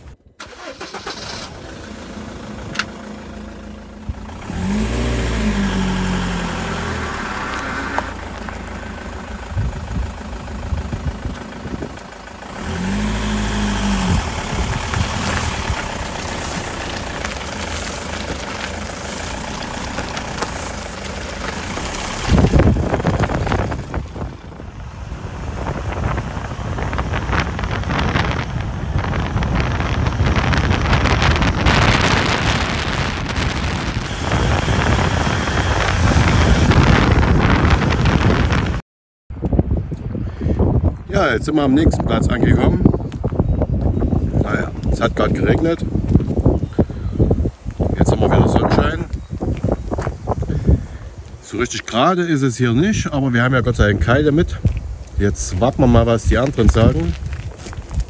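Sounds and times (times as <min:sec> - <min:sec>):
van engine: 0:00.0 - 0:38.8, 0:41.2 - 0:58.0
road noise: 0:00.0 - 0:58.0
rush of noise: 0:21.5 - 0:38.8.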